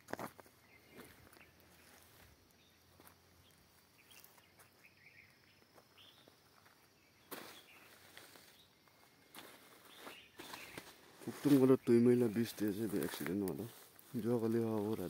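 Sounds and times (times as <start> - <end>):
faint bird chirps: 0.5 - 12.9
soft rustles: 9.4 - 15.0.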